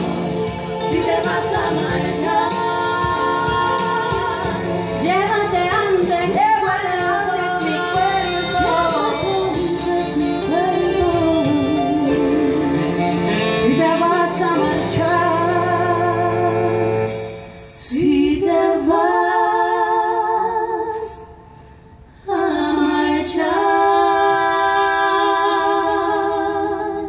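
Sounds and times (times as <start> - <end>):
musical accompaniment: 0.0 - 27.0
women singing with vibrato: 0.0 - 27.0.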